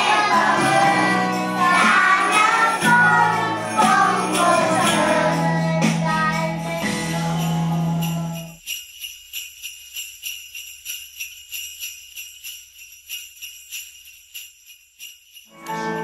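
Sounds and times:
jingle bells shaken: 0.0 - 16.0.

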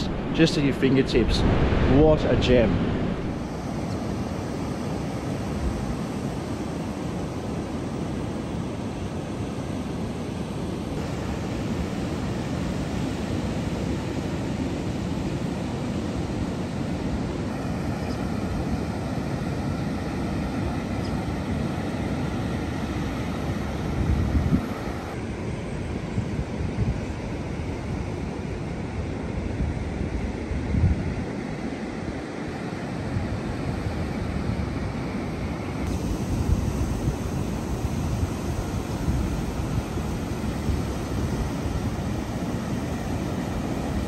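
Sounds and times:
waves breaking on sandy beach: 0.0 - 25.7, 31.2 - 44.0
low bump: 1.1 - 3.4.

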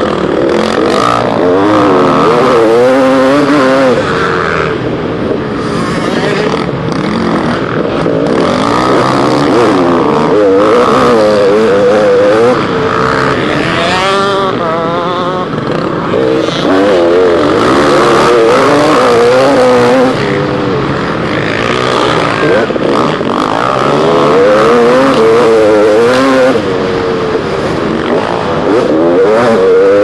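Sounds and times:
motocross bike engine revving: 0.0 - 30.0.

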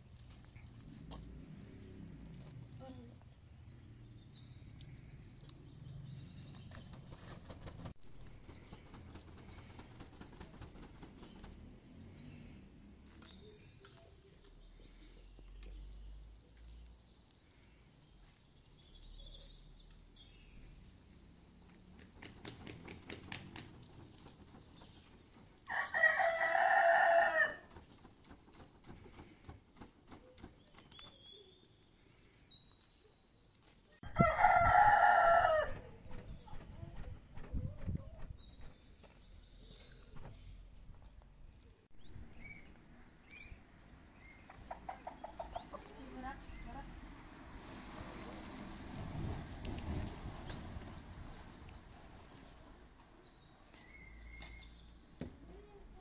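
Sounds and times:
small birds chirping: 0.0 - 56.0
rooster crowing: 25.7 - 27.6, 34.0 - 35.8.

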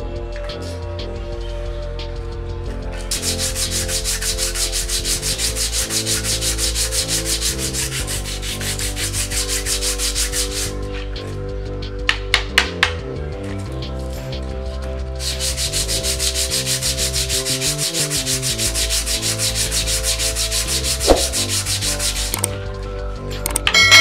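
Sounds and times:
brake pad rubbing on sandpaper: 3.0 - 11.4, 15.1 - 22.6.

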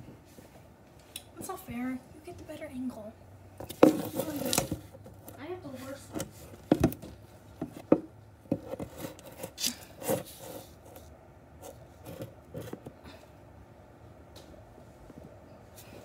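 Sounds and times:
hand rubbing and scraping phone: 3.6 - 13.0.

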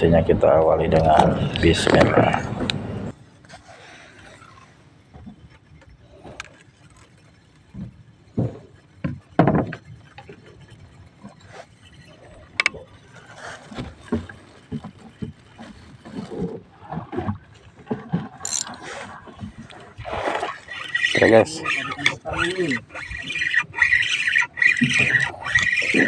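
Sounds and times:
fishing rod and reel clicks: 18.4 - 19.1, 19.7 - 26.0.

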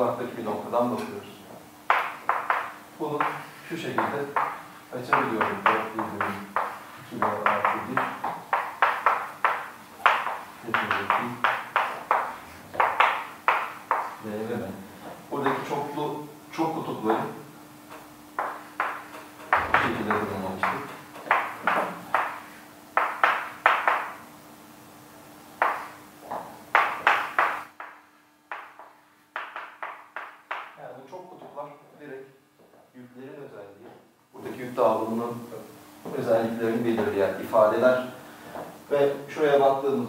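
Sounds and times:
faint hum: 0.0 - 40.0
chalk tapping on blackboard: 1.9 - 14.2, 17.9 - 24.2, 25.6 - 30.8.

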